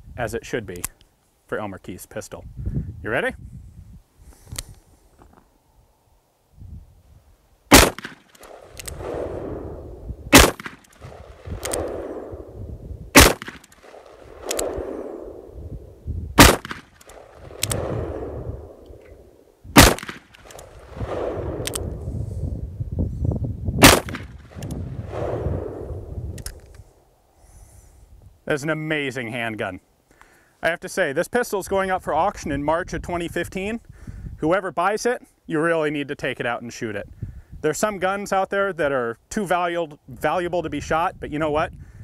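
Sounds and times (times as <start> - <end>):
revolver gunshots with echo: 7.7 - 15.8, 16.4 - 18.9, 19.7 - 22.0, 23.8 - 26.1.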